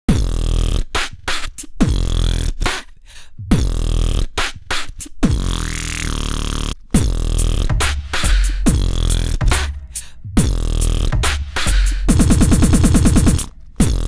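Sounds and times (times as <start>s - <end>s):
dubstep bass loops: 5.2s - 14.0s.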